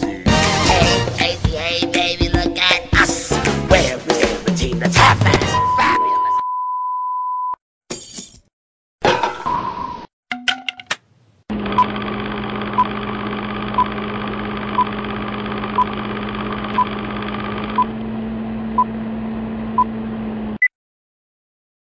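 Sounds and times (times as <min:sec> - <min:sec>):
higher beep: 0:05.5 - 0:07.6
short beeps: 0:05.5 - 0:07.6
film projector whirr: 0:11.5 - 0:20.6.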